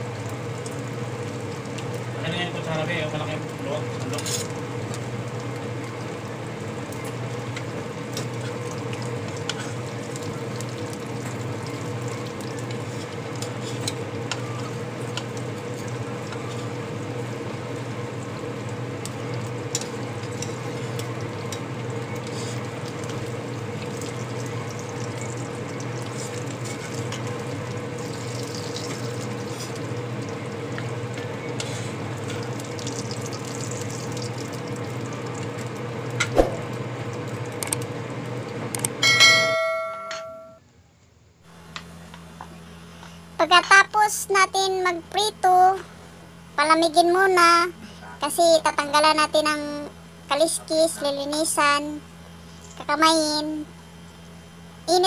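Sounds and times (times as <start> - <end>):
fish sizzling in hot oil: 0.0 - 36.2.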